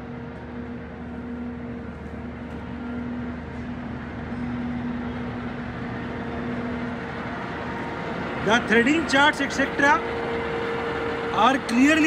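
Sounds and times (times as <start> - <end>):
lathe running: 0.0 - 12.0.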